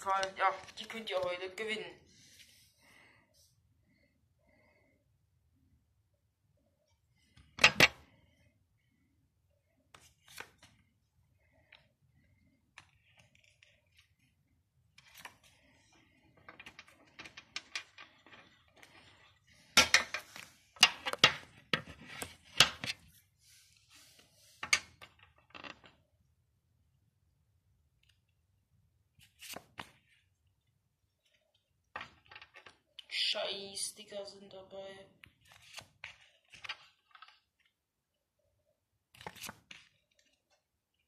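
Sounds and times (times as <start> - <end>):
soft paper rustling: 0.0 - 4.9, 6.8 - 26.0, 29.0 - 33.3, 35.2 - 38.0, 39.0 - 41.0
paper stickers flicking and snapping: 39.2 - 40.4.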